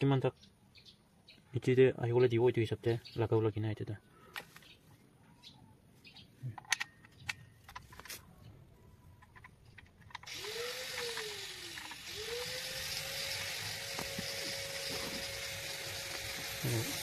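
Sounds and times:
electric drill motor running: 0:10.2 - 0:17.0.

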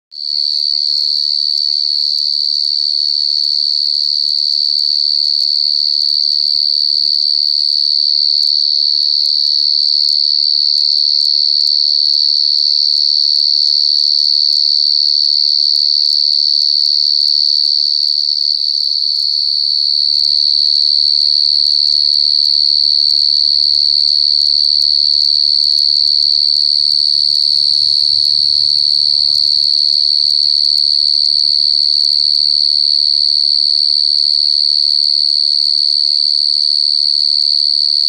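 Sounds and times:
cricket trilling: 0:00.2 - 0:09.6, 0:17.5 - 0:38.0.

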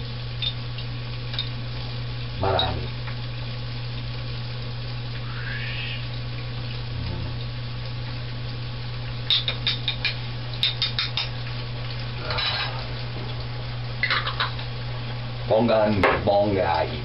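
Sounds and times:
sausage sizzling in a skillet: 0:05.2 - 0:06.3.

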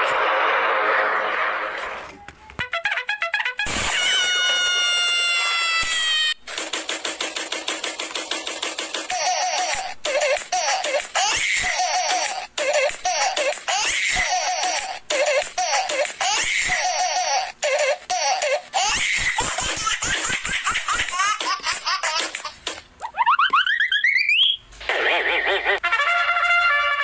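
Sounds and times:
giggling laughter: 0:23.0 - 0:25.8.

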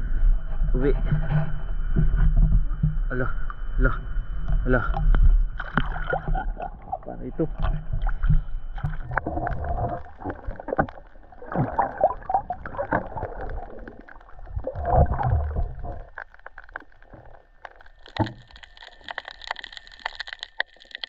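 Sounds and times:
muffled water sloshing underwater: 0:00.0 - 0:21.0
short clicks and crackles: 0:12.7 - 0:21.0.

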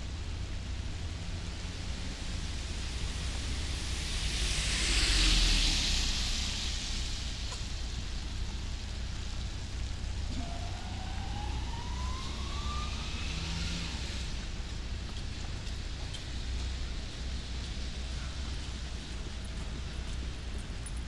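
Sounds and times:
faint rising whine: 0:00.0 - 0:15.3
low city rumble: 0:00.0 - 0:21.0
steady rain: 0:00.0 - 0:21.0
car tyres hissing through water: 0:00.2 - 0:11.8.

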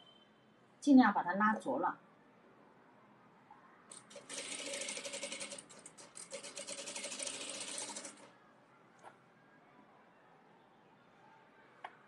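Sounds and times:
sewing machine stitching: 0:03.9 - 0:08.3.

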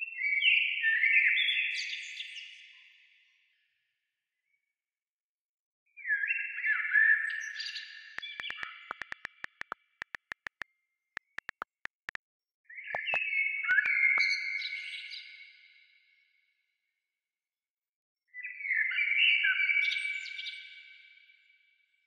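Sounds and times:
rapid sharp clicks: 0:08.2 - 0:10.6, 0:11.2 - 0:12.2, 0:13.0 - 0:13.9
synthesized chirping tones: 0:13.0 - 0:13.2.

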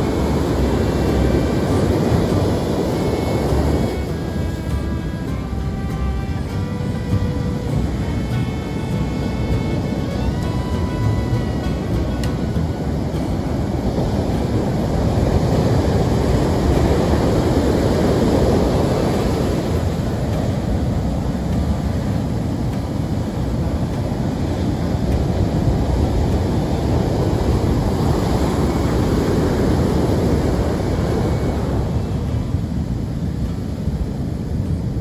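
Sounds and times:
ocean surf breaking on beach: 0:00.0 - 0:35.0
wind buffeting microphone: 0:00.0 - 0:35.0.

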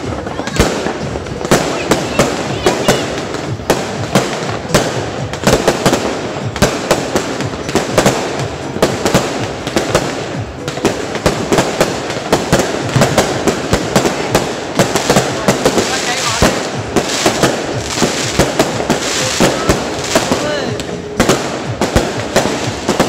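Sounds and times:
fireworks bangs: 0:00.0 - 0:23.0
fireworks crackling: 0:00.0 - 0:23.0.

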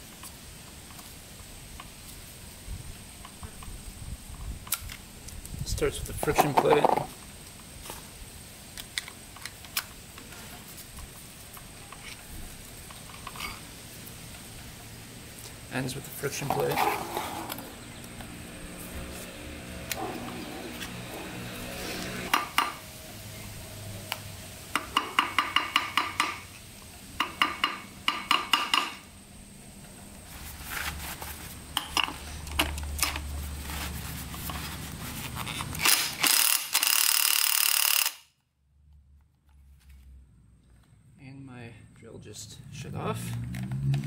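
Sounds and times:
hammer tapping on metal: 0:24.7 - 0:26.4, 0:27.2 - 0:29.0
cordless drill running: 0:36.2 - 0:38.2.

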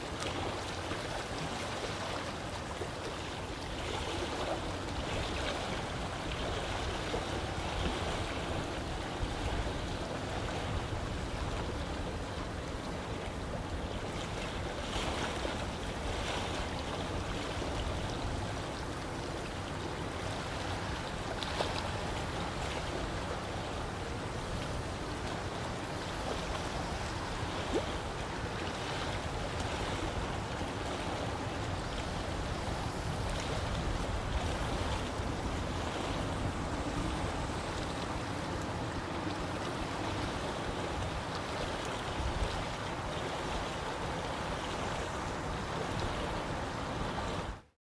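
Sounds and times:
lake water rushing: 0:00.0 - 0:47.7
water splashes: 0:00.0 - 0:47.7.

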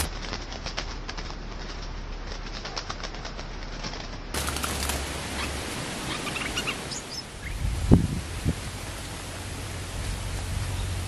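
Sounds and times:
bird wings fluttering: 0:00.0 - 0:07.1
bird chirps: 0:05.3 - 0:07.7.

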